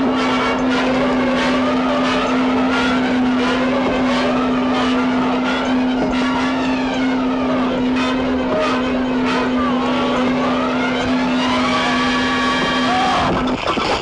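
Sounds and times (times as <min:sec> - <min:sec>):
crane machinery hum: 0:00.0 - 0:14.0
motor whines: 0:00.0 - 0:14.0.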